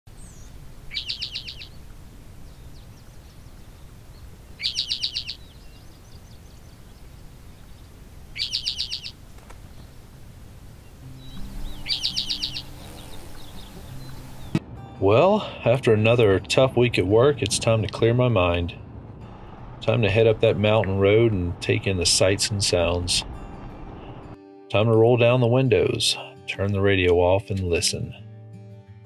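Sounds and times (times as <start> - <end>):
songbird trilling: 0.1 - 14.6
faint music: 10.9 - 23.4.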